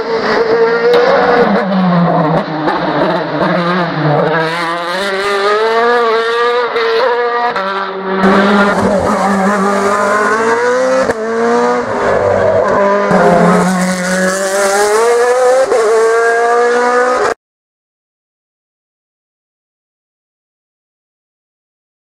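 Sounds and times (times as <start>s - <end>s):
racing car engine at full throttle: 0.0s - 17.4s.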